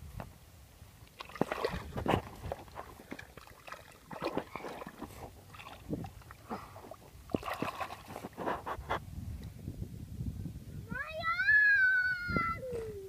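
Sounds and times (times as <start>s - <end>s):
hands squelching in mud: 1.1s - 8.9s.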